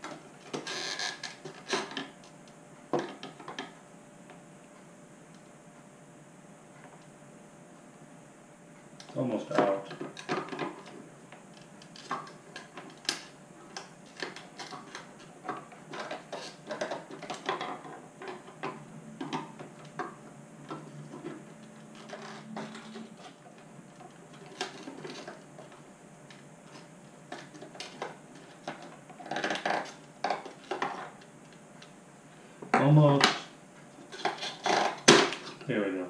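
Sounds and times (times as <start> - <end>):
plastic clicks and creaks: 0.4 - 2.2, 9.0 - 20.1, 20.7 - 31.9.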